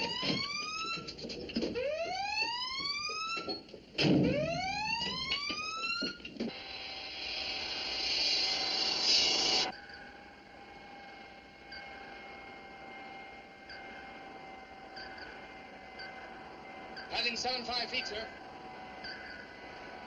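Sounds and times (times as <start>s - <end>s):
metal clanks and knocks: 0.0s - 1.8s
collision alarm whooping: 1.8s - 3.6s, 4.2s - 20.0s
loud hiss: 6.5s - 9.7s.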